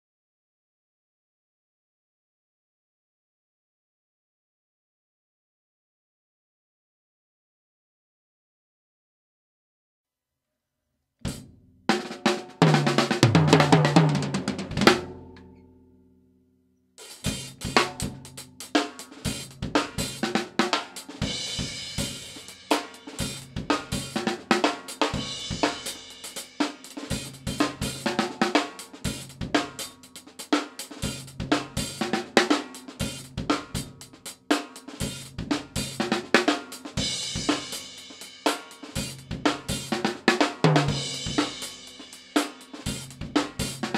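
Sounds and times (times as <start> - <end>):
drum kit playing: 11.3 - 15.4, 17.0 - 43.9.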